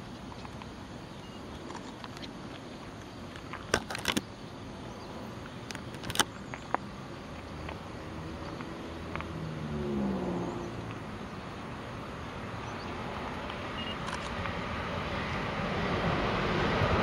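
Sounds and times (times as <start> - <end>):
outdoor background noise: 0.0 - 17.0
camera handling clicks and knocks: 3.4 - 4.2, 5.7 - 6.3.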